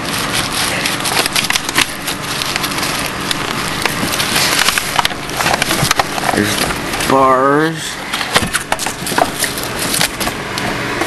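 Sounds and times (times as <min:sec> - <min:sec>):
bubble wrap crinkling: 0:00.0 - 0:07.3, 0:08.3 - 0:10.4.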